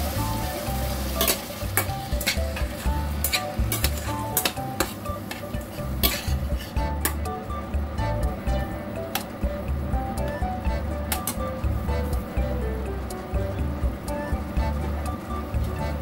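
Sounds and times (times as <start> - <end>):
low sizzle: 0.0 - 16.0
fork scraping a metal pan: 1.2 - 6.8
fork tines clicking against pan: 1.2 - 7.3.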